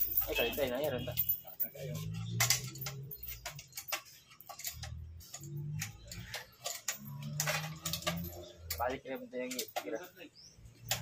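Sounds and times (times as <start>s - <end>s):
chain hoist ratchet clicking: 0.0s - 11.0s.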